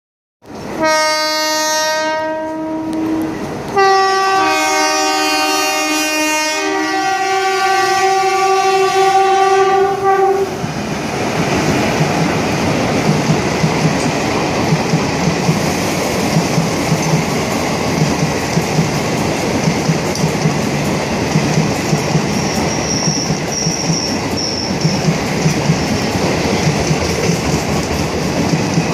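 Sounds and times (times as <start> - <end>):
locomotive horn blasts: 0.8 - 10.6
train wheels clicking over rail joints: 10.7 - 28.9.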